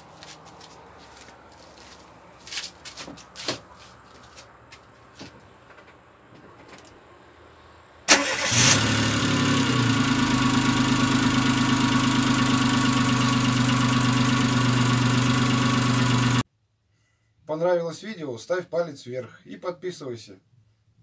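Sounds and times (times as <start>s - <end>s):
car engine starting and idling: 6.8s - 16.4s.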